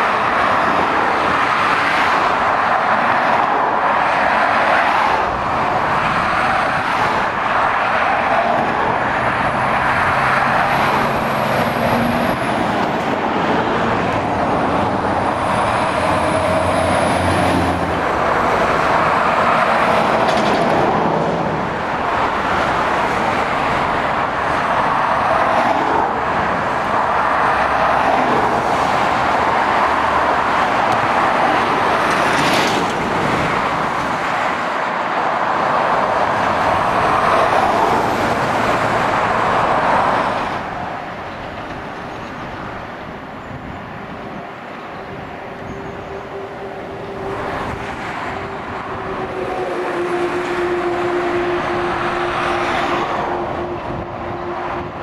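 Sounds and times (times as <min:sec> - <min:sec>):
motorway traffic rushing: 0:00.0 - 0:55.0.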